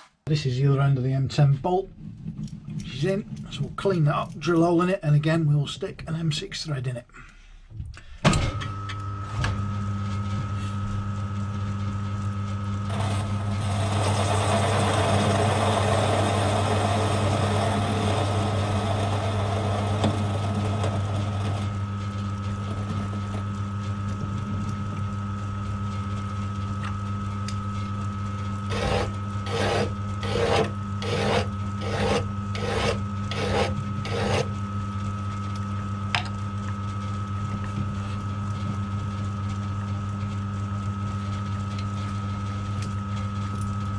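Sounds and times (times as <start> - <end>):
lathe motor humming and whining: 9.0 - 42.4
hand file rasping on metal: 28.7 - 34.5.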